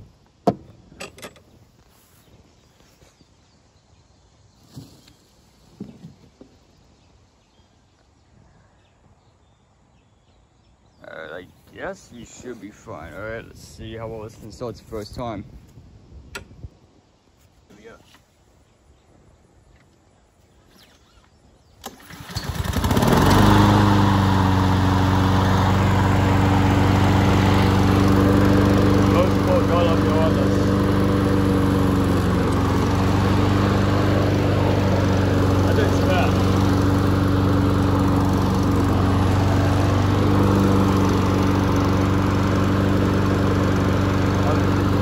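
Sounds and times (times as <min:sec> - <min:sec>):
lawn mower engine pull-started: 0:20.6 - 0:45.0.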